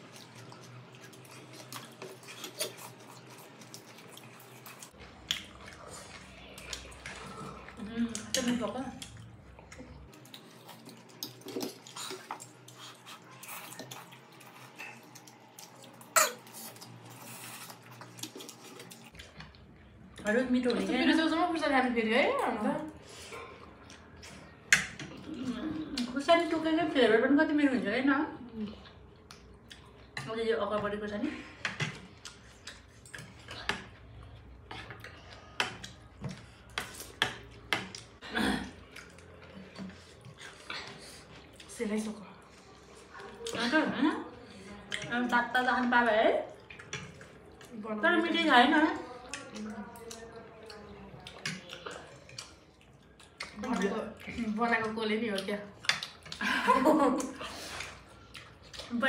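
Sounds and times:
slurping and chewing noodles: 0.0 - 8.4, 9.0 - 19.7, 38.8 - 41.8, 49.0 - 54.5, 57.2 - 59.0.

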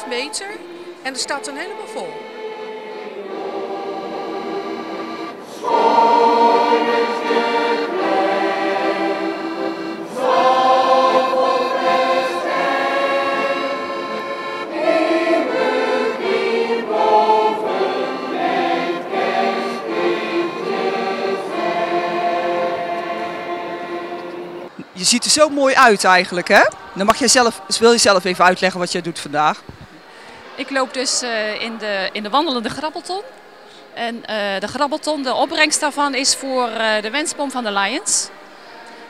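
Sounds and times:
accordions playing: 0.0 - 24.9, 26.2 - 29.6
mixed choir singing: 0.0 - 24.9, 25.8 - 33.6, 35.4 - 39.0.

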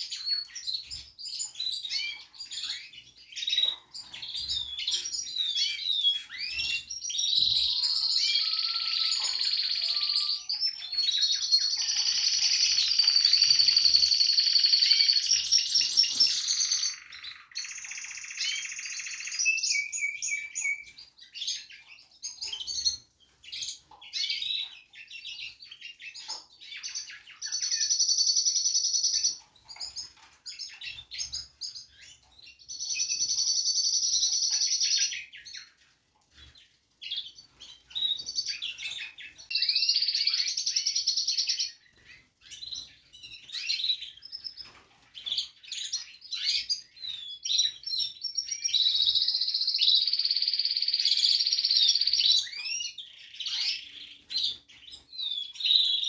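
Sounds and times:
canary trilling song: 0.0 - 56.0
small birds chirping: 0.0 - 56.0.

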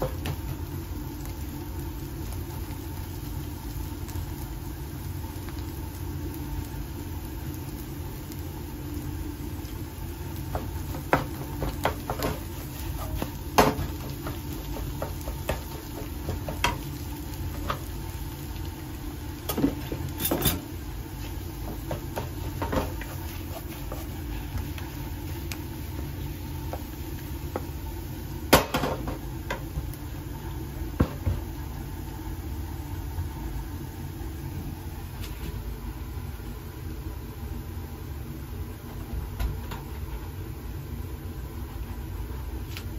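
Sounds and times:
steady low hum: 0.0 - 42.9
wooden spatula scraping frying pan: 21.2 - 25.0.

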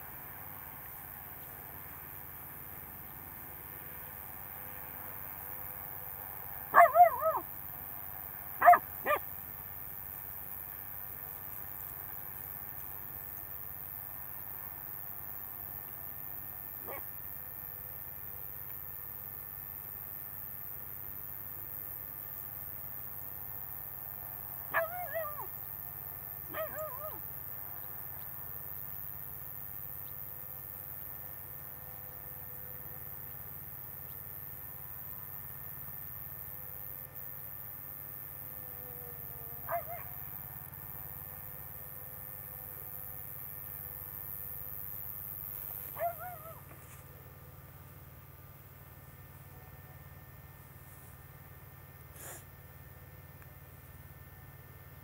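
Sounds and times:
dog barking: 6.7 - 7.5, 8.6 - 9.3, 16.8 - 17.1, 24.7 - 25.5, 26.5 - 27.2, 39.6 - 40.2, 45.9 - 46.6.

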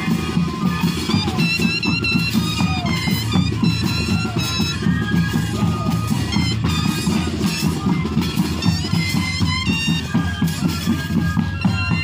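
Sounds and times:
pulsing drum beat: 0.0 - 12.0
reedy flutes playing melody: 0.0 - 12.0.

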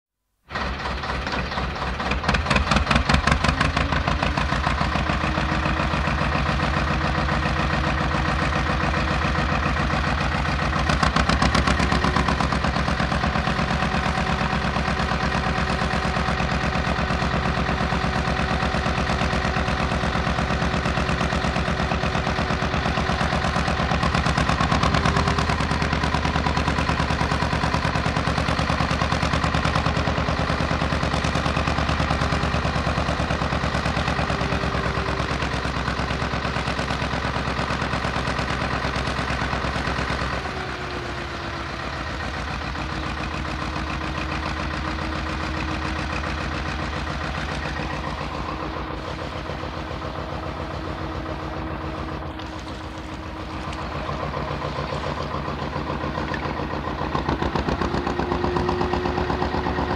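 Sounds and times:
boat engine rapid firing beat: 42.4 - 59.9.

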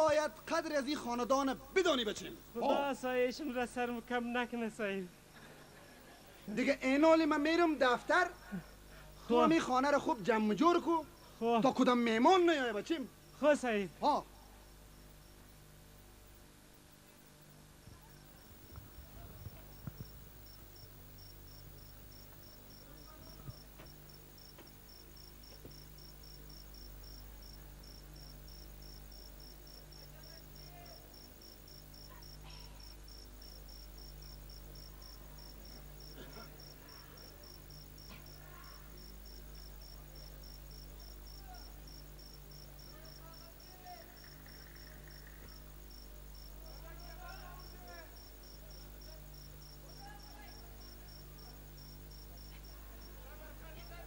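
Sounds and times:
low steady hum: 0.0 - 54.0
cricket chirping: 14.7 - 16.0, 18.0 - 54.0
faint voices: 17.8 - 20.8.

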